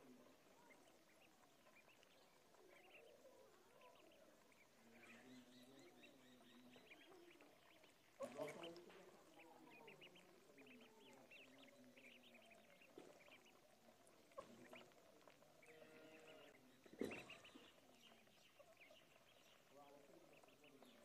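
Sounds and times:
ducklings peeping: 0:00.0 - 0:21.0.

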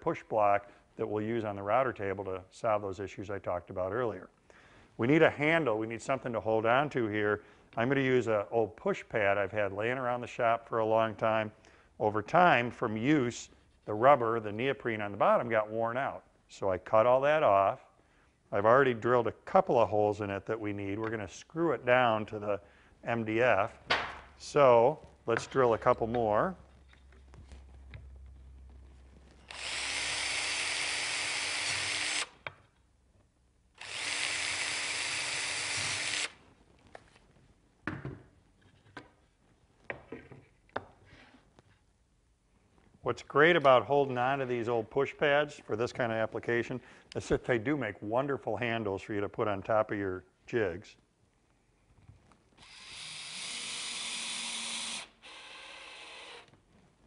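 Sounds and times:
cordless drill boring through plastic: 0:29.4 - 0:32.4, 0:33.8 - 0:36.4, 0:52.6 - 0:56.5.

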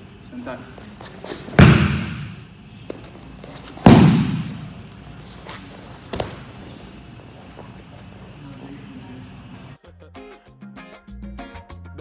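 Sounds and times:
bodies thudding on foam mats: 0:00.9 - 0:06.9.

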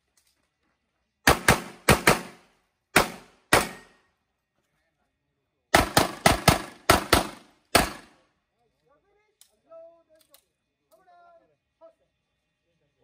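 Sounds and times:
pistol shots with echo: 0:01.3 - 0:02.4, 0:03.0 - 0:04.0, 0:05.7 - 0:08.2.

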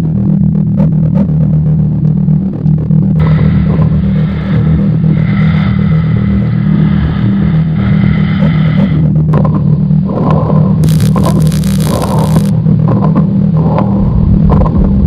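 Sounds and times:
distorted bass guitar drone: 0:00.0 - 0:15.0
steady high buzz: 0:10.8 - 0:12.6.

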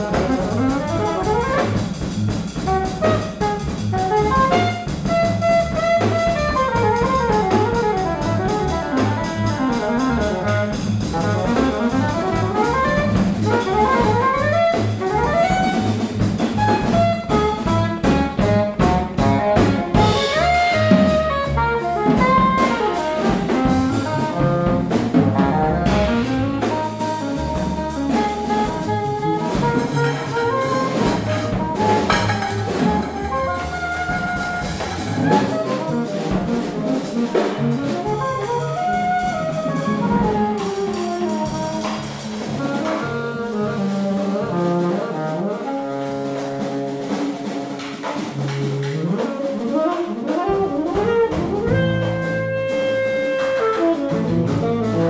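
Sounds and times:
double bass: 0:00.0 - 0:55.0
drums: 0:00.0 - 0:55.0
saxophones: 0:16.6 - 0:42.0, 0:42.6 - 0:55.0.

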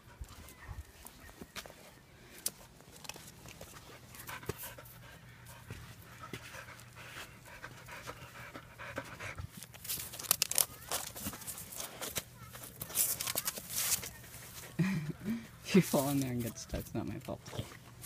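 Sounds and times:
puppy panting: 0:03.6 - 0:09.8.

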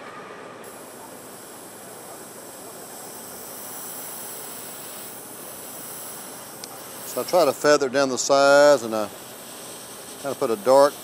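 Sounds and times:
airbrush spraying hiss: 0:00.6 - 0:11.0.

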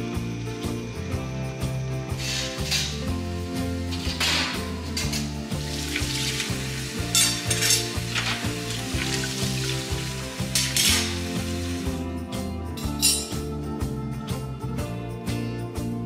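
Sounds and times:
background music: 0:00.0 - 0:16.0
tap water splashing on utensils: 0:03.9 - 0:12.0.

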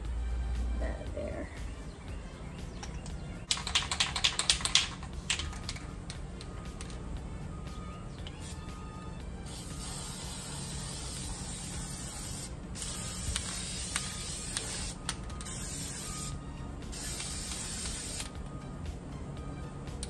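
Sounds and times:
aerosol can spraying: 0:08.3 - 0:08.8, 0:09.4 - 0:18.4.

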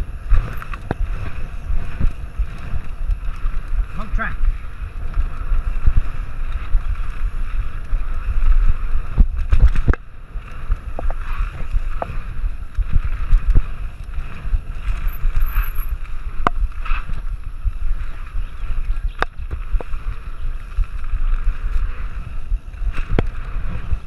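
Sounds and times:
bike rattling: 0:00.0 - 0:24.0
tyre rumble: 0:00.0 - 0:24.0
wind buffeting microphone: 0:00.0 - 0:24.0.

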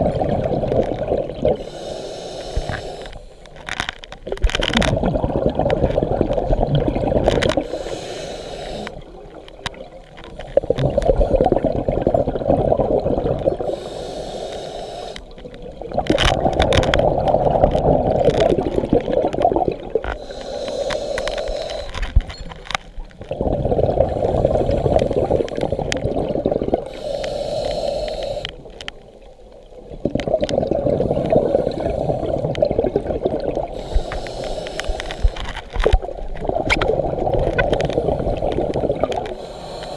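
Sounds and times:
exhaled air bubbling underwater: 0:00.0 - 0:39.9
regulator hiss on inhale: 0:01.5 - 0:03.7, 0:07.6 - 0:09.0, 0:13.6 - 0:15.4, 0:20.1 - 0:22.2, 0:24.0 - 0:26.0, 0:26.8 - 0:28.8, 0:31.0 - 0:32.6, 0:33.7 - 0:35.9, 0:37.8 - 0:39.9.

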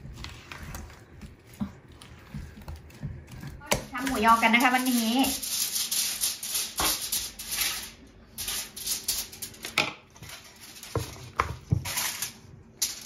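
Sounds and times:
spatula scraping bowl: 0:00.0 - 0:08.8.

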